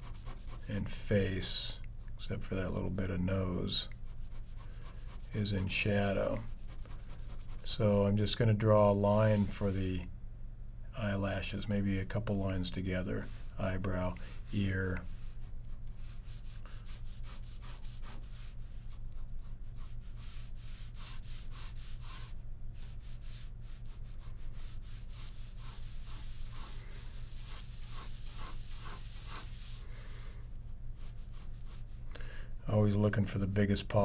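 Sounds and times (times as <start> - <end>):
pen scratching on paper: 0.0 - 0.7, 23.9 - 29.8
low electrical hum: 0.0 - 34.0.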